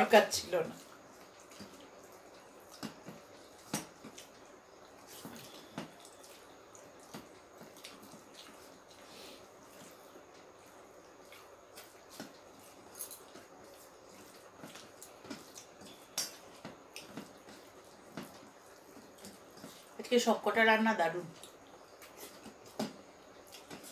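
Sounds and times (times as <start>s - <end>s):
person chewing food: 0.7s - 20.0s, 21.3s - 23.9s.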